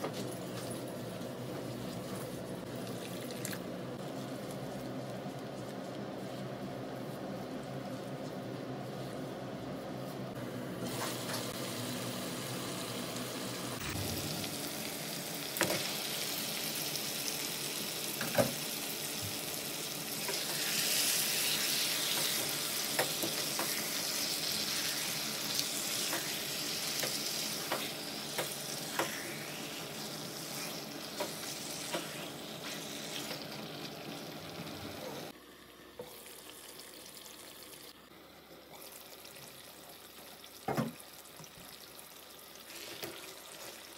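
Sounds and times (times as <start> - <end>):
meat sizzling in a wok: 10.9 - 35.3.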